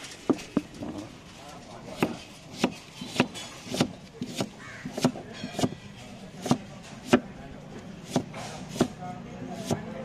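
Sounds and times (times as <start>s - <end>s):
knife chopping onion on board: 1.9s - 7.4s, 8.0s - 9.0s, 9.6s - 10.0s.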